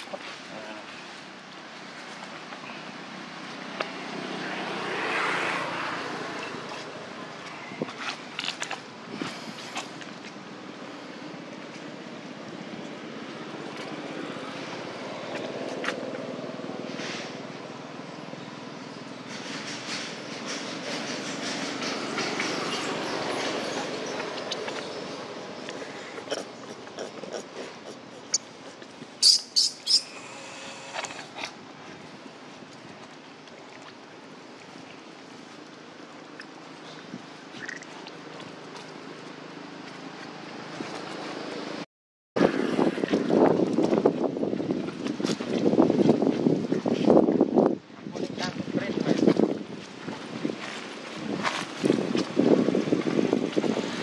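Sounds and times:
baby monkey squealing: 26.3s - 30.3s.

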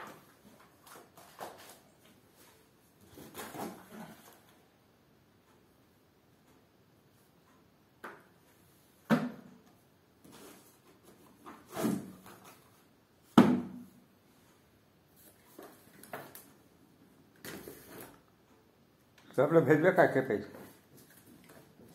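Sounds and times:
books knocking onto books: 9.1s - 9.5s, 13.4s - 13.9s.

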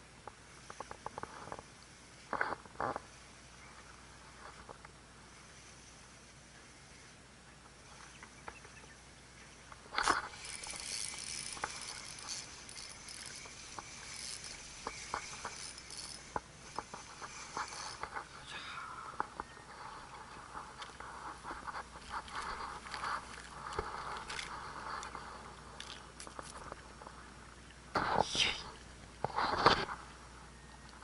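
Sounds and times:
fishing reel whirring: 0.5s - 7.2s, 9.5s - 26.8s.

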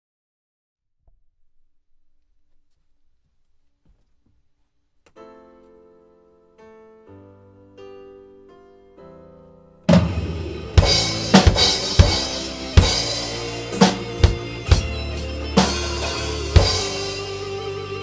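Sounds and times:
piano intro: 5.2s - 18.0s
acoustic drum kit: 9.9s - 18.0s
band backing track: 9.9s - 18.0s.

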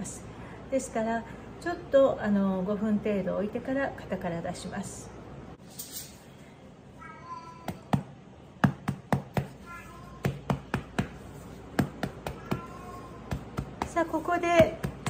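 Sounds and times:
knocking on a metal cake pan: 10.2s - 15.0s.

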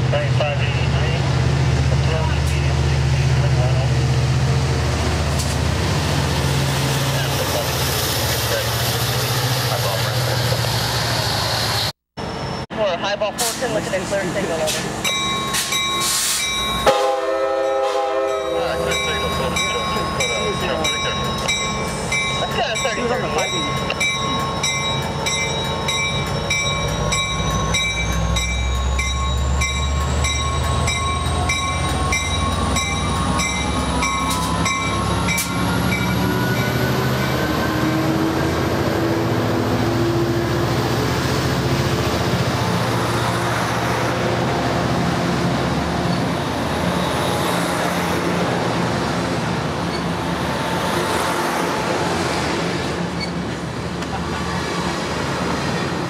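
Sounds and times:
train wheels rumbling on rail: 0.0s - 11.9s, 13.4s - 56.0s
diesel locomotive engine: 0.0s - 56.0s
locomotive bell ringing: 14.5s - 37.4s
rising engine whine: 26.9s - 52.1s.

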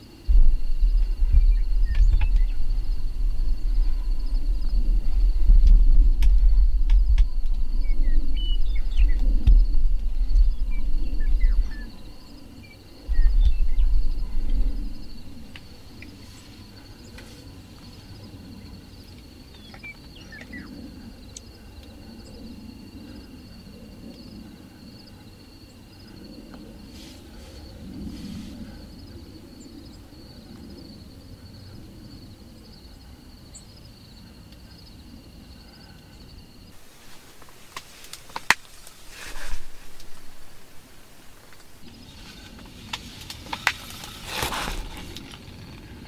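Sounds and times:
insects trilling: 0.0s - 46.0s
low wind rumble: 0.0s - 46.0s
faint bird chirps: 0.3s - 23.3s.

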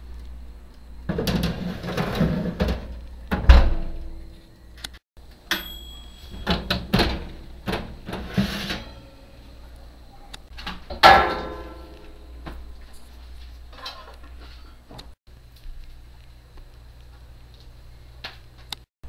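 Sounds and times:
metal baking tray clattering: 1.1s - 4.0s, 5.6s - 9.4s, 10.6s - 12.0s
oven door shutting thump: 1.1s - 4.2s, 6.3s - 9.0s.

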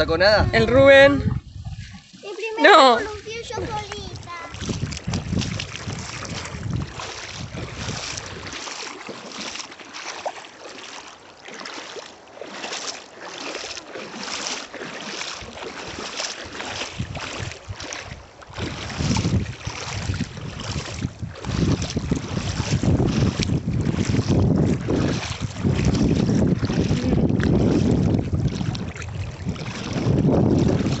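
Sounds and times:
wind buffeting microphone: 0.0s - 8.7s, 15.3s - 31.0s
river water over gravel: 0.0s - 31.0s.

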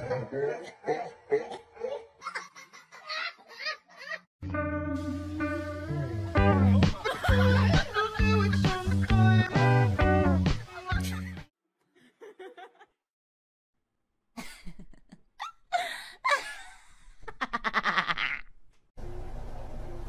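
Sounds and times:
person giggling: 0.0s - 4.3s, 6.9s - 9.2s, 10.9s - 13.0s, 14.4s - 18.6s
person laughing: 0.0s - 4.3s, 6.7s - 9.6s, 10.7s - 11.4s, 12.0s - 13.0s, 14.4s - 18.6s.

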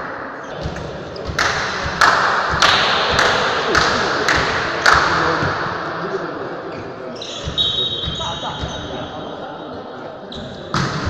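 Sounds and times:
volleyball bouncing on floor: 0.6s - 5.7s, 7.4s - 9.0s, 10.4s - 11.0s.

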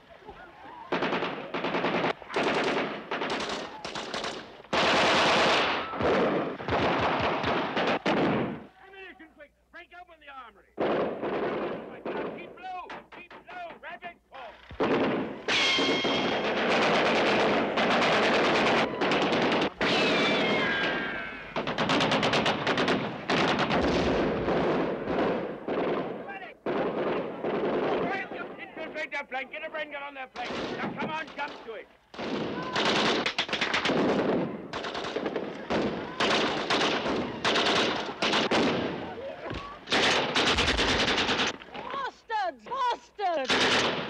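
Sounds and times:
automatic gunfire bursts: 0.9s - 8.6s, 14.8s - 20.9s, 21.6s - 28.1s, 32.2s - 39.0s, 39.9s - 41.6s, 43.5s - 44.0s
sharp gunshots: 0.9s - 8.7s, 10.8s - 13.5s, 14.7s - 29.0s, 30.3s - 41.6s, 43.4s - 44.0s
high falling wail: 18.6s - 21.7s.

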